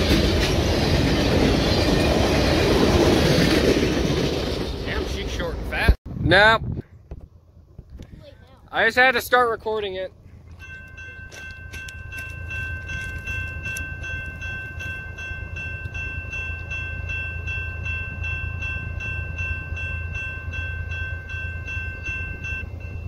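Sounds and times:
diesel locomotive rumble: 0:00.0 - 0:06.6, 0:07.3 - 0:23.0
high ringing tone: 0:10.5 - 0:23.0.

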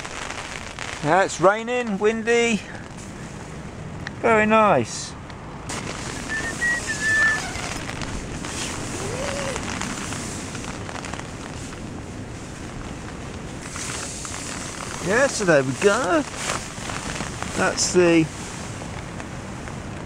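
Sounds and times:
gusty wind: 0:00.0 - 0:20.0
rain pattering on tent: 0:00.0 - 0:20.0
brief high squeak: 0:06.2 - 0:07.8.

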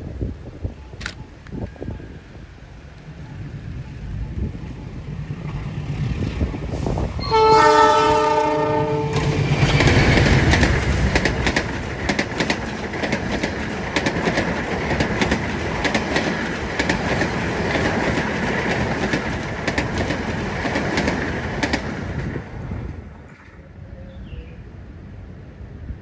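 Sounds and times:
train passing at speed: 0:00.0 - 0:26.0
wheels clicking over rails: 0:09.1 - 0:22.5.

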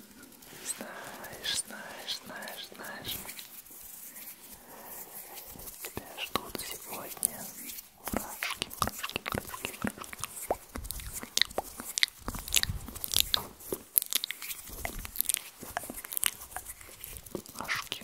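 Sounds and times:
wet mouth clicks and crackles: 0:04.3 - 0:18.0.

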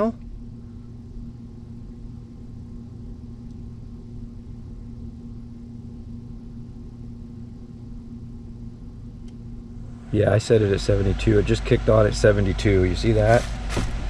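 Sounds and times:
air conditioner humming: 0:00.0 - 0:14.0
air rumbling through ducts: 0:09.7 - 0:14.0.

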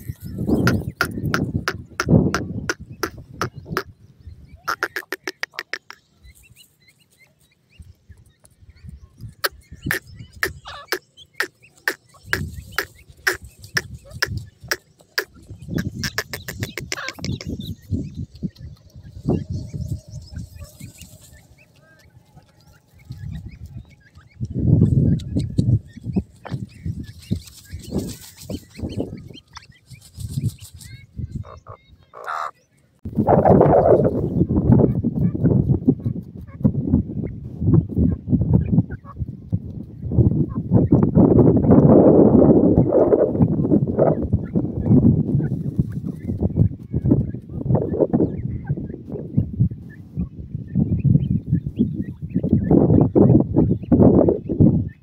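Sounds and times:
birds clucking: 0:00.0 - 0:41.8
chicks peeping: 0:00.0 - 0:41.9, 0:42.8 - 0:55.0
scuffling and fluttering in dirt: 0:11.0 - 0:31.2.

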